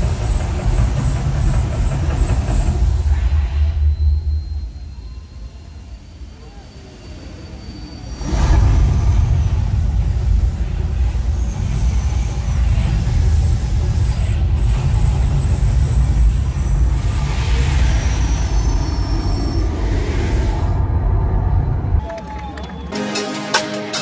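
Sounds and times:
fire jets deep rumble: 8.1 - 22.0
fireballs roaring: 8.2 - 22.0.

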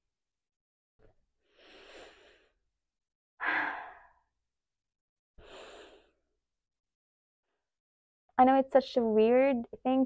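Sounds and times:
woman breathing in through nose: 1.4 - 2.6, 5.4 - 6.2.

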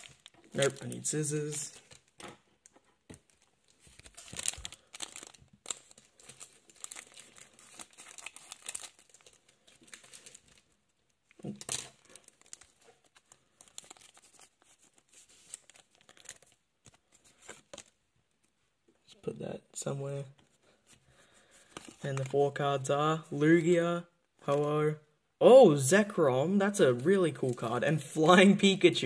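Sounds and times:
foil wrapper crinkling and tearing: 0.0 - 2.1, 3.3 - 10.8, 12.0 - 17.9.

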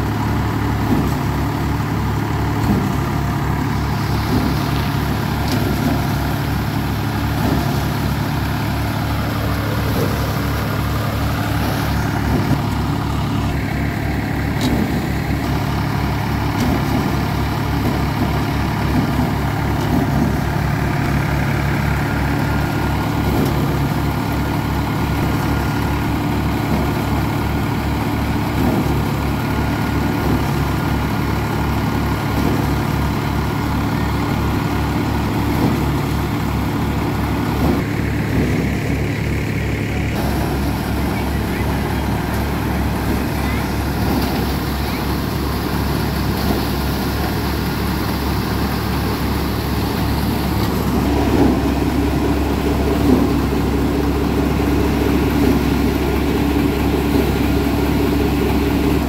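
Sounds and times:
thresher drum humming: 0.0 - 59.0
tractor diesel engine running: 0.0 - 59.0.

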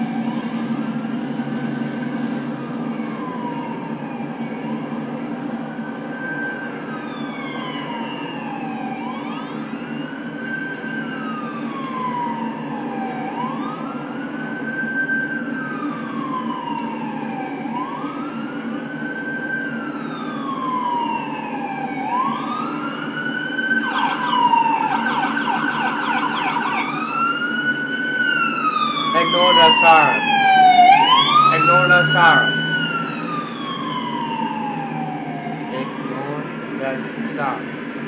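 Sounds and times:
emergency vehicle siren: 0.0 - 38.0.

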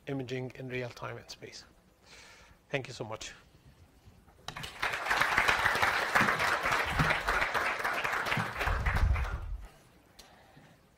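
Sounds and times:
audience applauding: 4.5 - 9.6.

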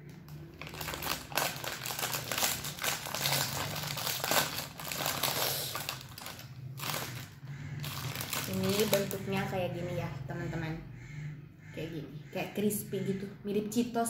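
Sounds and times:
plastic chip bag crinkling: 0.3 - 9.5.

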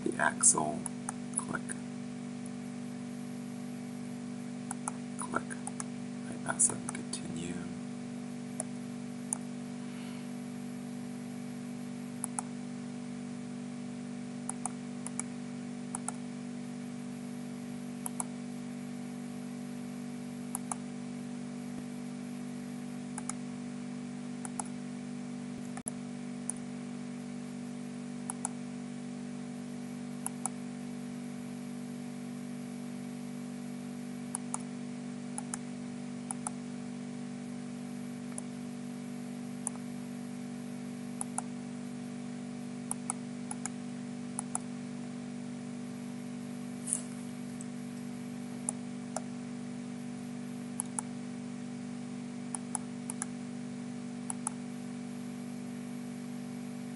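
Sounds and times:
low electrical hum: 0.0 - 56.9
computer mouse clicking: 12.2 - 12.5, 14.5 - 15.3, 15.9 - 16.2, 18.0 - 18.3, 20.5 - 20.8, 23.2 - 23.4, 24.4 - 24.7, 28.3 - 28.6, 36.3 - 36.6, 41.2 - 41.5, 42.9 - 43.8, 44.4 - 44.6, 50.8 - 51.1, 52.5 - 53.3, 54.3 - 54.6.

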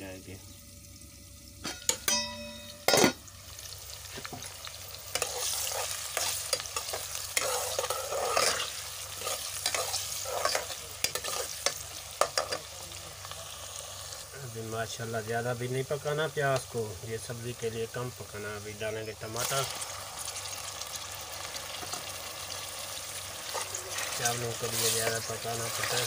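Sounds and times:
onions sizzling in hot oil: 0.0 - 26.0
ladle scraping a pot: 5.1 - 11.6.

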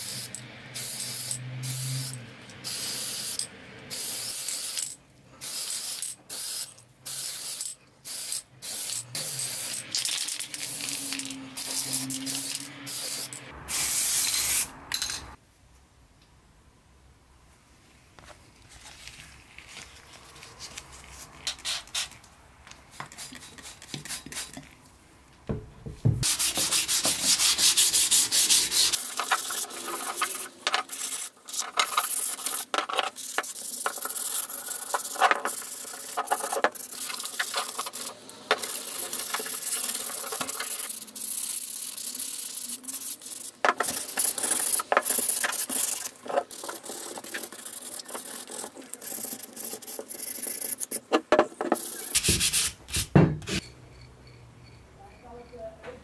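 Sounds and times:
sandpaper rubbing on metal: 26.2 - 51.0, 51.8 - 53.6.

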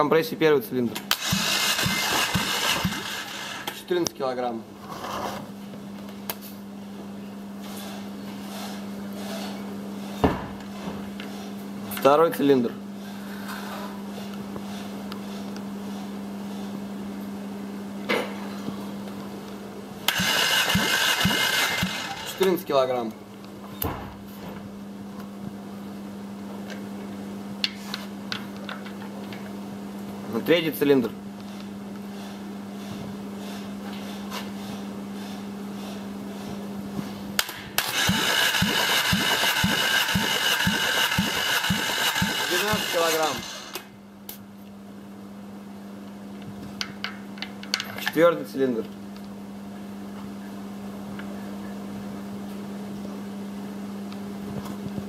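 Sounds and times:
starter motor cranking engine: 1.1 - 3.9, 20.1 - 22.6, 37.4 - 43.9.

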